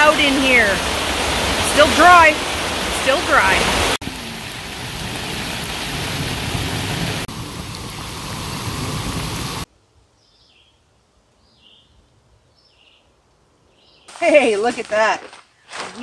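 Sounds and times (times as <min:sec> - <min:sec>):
heavy rain on tent: 0:00.0 - 0:09.7.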